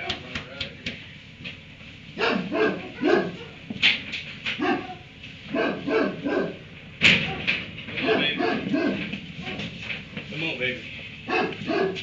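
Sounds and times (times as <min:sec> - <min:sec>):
dog barking: 0:02.2 - 0:03.6, 0:04.6 - 0:06.6, 0:07.2 - 0:09.7, 0:11.3 - 0:12.0.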